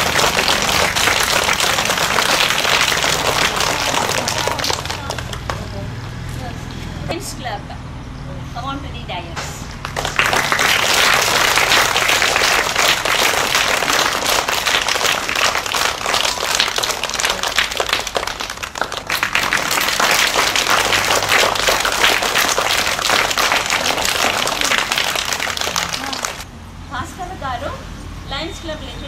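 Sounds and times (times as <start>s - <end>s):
applause: 0.0s - 5.7s, 9.8s - 26.5s.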